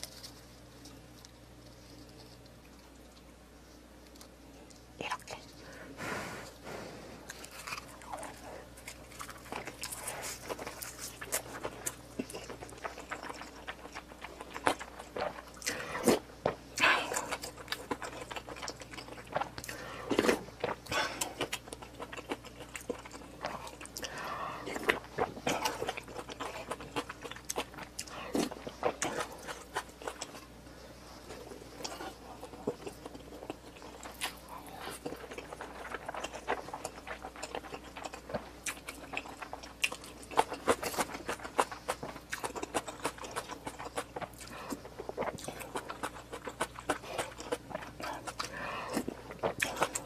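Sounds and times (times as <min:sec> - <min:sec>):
person chewing with wet clicks: 0:04.0 - 0:05.6, 0:07.3 - 0:50.0.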